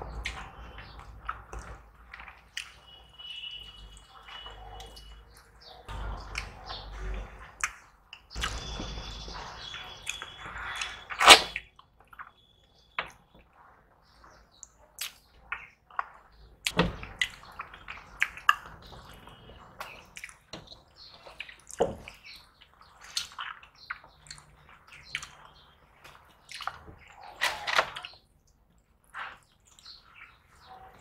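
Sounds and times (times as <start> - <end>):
food squelching by hand: 0.1 - 31.0
wet chewing and lip smacks: 19.8 - 20.6, 21.2 - 25.6, 26.2 - 27.2.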